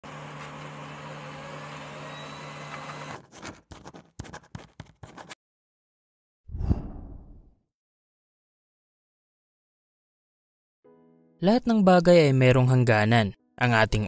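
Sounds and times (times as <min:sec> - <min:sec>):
felt-tip marker writing: 0:03.2 - 0:05.4
low hum: 0:06.5 - 0:07.5.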